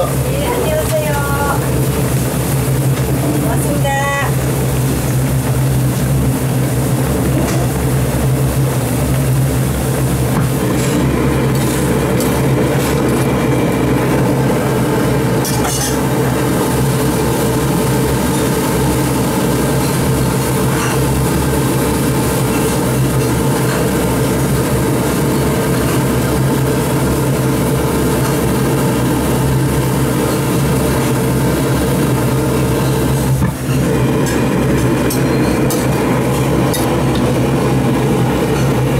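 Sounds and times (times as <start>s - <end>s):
stew boiling and bubbling: 0.0s - 38.9s.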